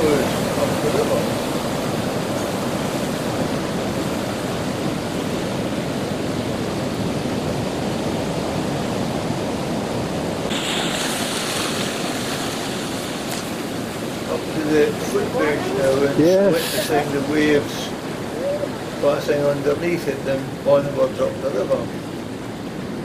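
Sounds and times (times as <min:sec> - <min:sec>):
rushing water and breaking surf: 0:00.0 - 0:23.0.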